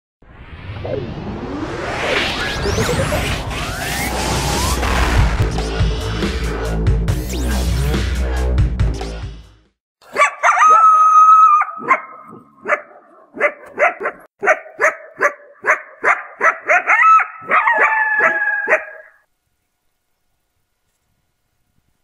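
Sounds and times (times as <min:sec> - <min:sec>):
coyote howling and yipping: 0:10.1 - 0:12.4, 0:16.4 - 0:19.2.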